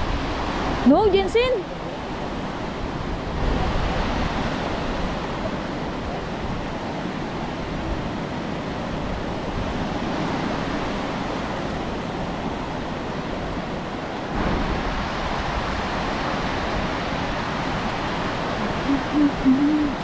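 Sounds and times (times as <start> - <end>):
steady rushing noise: 8.9 - 20.0.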